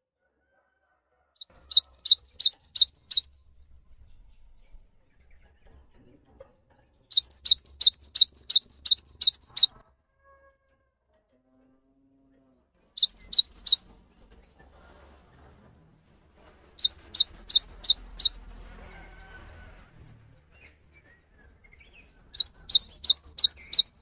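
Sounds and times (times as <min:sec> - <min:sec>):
bird singing high whistled notes: 0:01.4 - 0:03.3, 0:07.1 - 0:09.8, 0:13.0 - 0:13.8, 0:16.8 - 0:18.5, 0:22.4 - 0:24.0.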